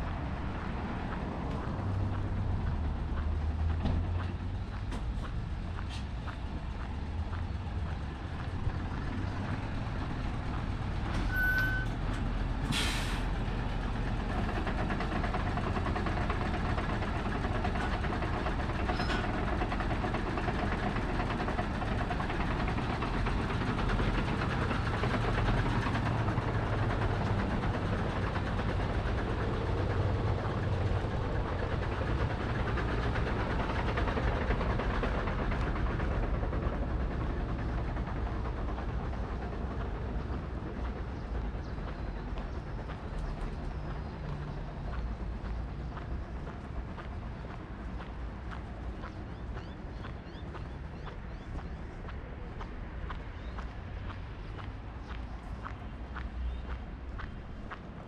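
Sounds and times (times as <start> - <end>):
truck diesel engine running: 0.0 - 56.2
short beep: 11.3 - 12.0
air brakes hissing: 12.6 - 13.4.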